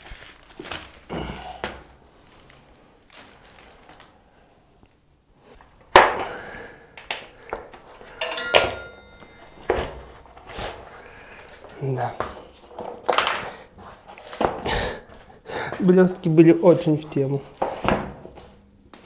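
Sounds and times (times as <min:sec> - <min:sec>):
metallic ring: 0:08.0 - 0:10.2.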